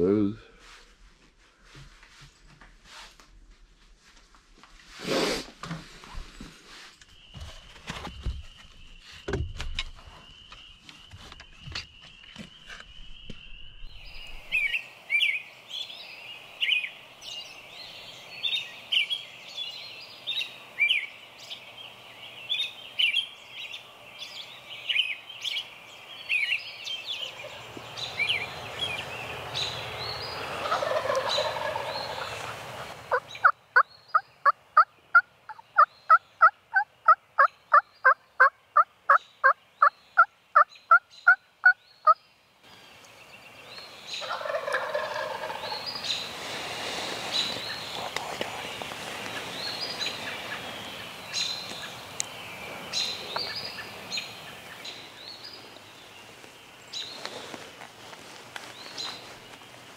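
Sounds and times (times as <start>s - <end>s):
songbirds singing: 6.2s - 59.9s
turkey yelps: 30.6s - 33.5s, 44.2s - 45.7s.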